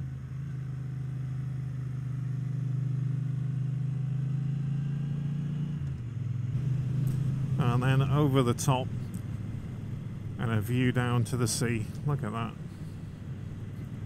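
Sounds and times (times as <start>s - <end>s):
motorcycle engine running: 6.0s - 14.0s.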